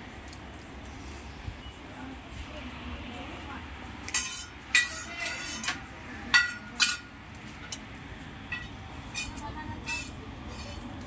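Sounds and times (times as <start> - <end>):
utensils and dishes clinking: 4.0 - 11.0.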